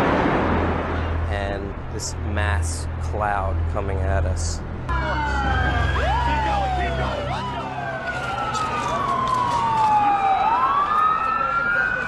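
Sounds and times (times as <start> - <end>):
emergency vehicle sirens wailing: 4.9 - 12.0.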